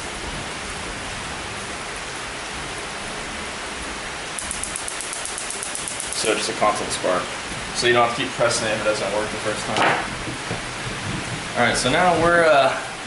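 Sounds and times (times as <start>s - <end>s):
steady hiss: 0.0s - 13.0s
spark igniter snapping clicks: 4.4s - 6.3s.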